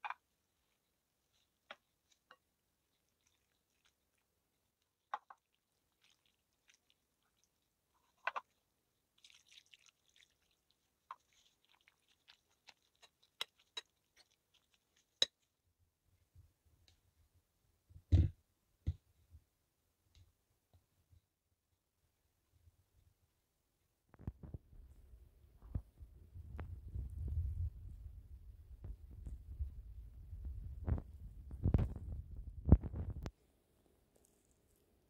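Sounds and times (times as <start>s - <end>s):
faint clicks and soft taps: 16.3s - 17.1s, 20.1s - 21.3s, 24.1s - 33.4s.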